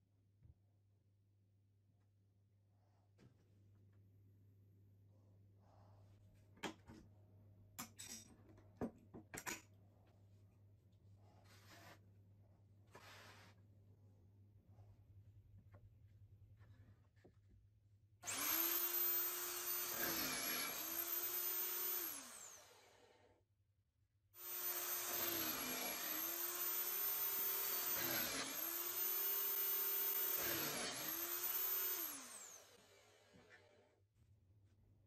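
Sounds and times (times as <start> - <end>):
drill with hole saw cutting wood: 18.2 - 23.3, 24.4 - 33.9.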